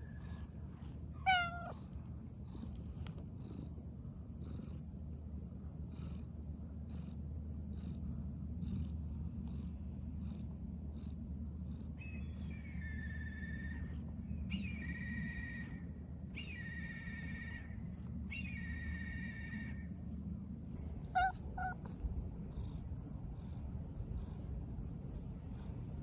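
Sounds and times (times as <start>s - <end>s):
cat purring: 0.0s - 12.9s, 20.7s - 26.0s
drawn-out high call: 21.0s - 21.9s.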